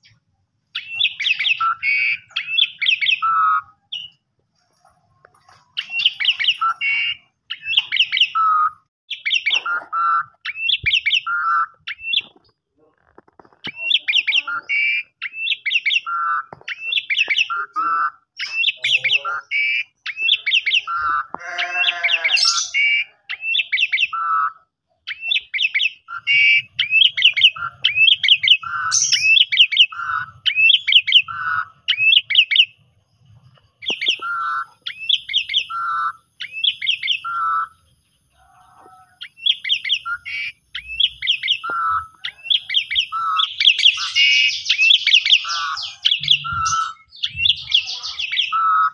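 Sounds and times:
starling singing whistled phrases: 0.0 - 4.2, 5.8 - 12.4, 13.7 - 32.8, 33.8 - 37.9, 39.2 - 48.9.

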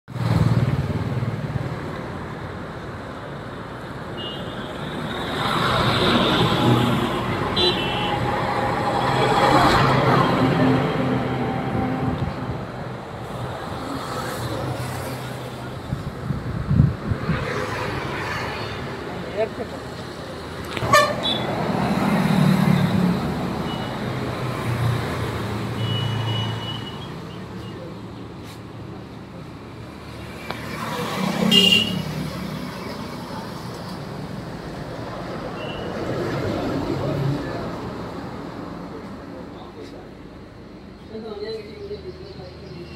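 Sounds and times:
motor vehicles passing: 0.1 - 2.6, 5.0 - 39.9
car horn toots: 20.8 - 21.5.

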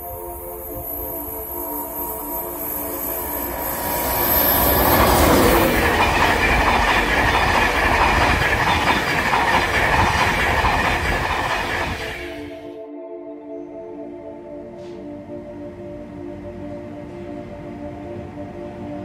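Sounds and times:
train passing at speed: 0.0 - 12.7, 14.8 - 19.0.

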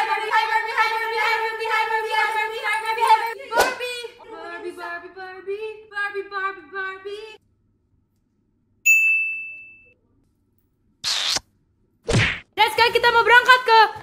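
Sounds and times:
women singing: 0.0 - 7.4
bright ding: 8.9 - 10.0.

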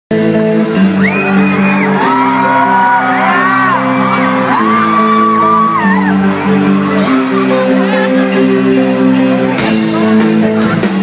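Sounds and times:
live rock band playing: 0.1 - 11.0
crowd whooping and shouting: 1.0 - 7.9.

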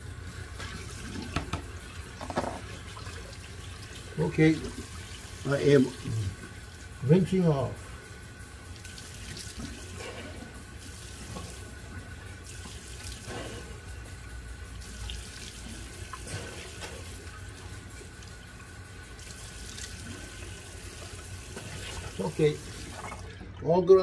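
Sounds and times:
tap running: 0.6 - 3.1
water splashing: 19.2 - 23.7.

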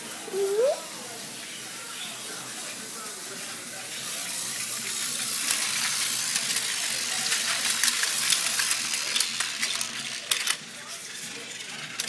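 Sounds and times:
toy train motor whirring: 2.6 - 12.0.

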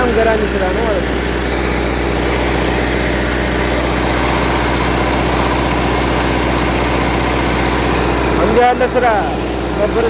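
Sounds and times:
tractor diesel engine idling: 0.0 - 10.0.

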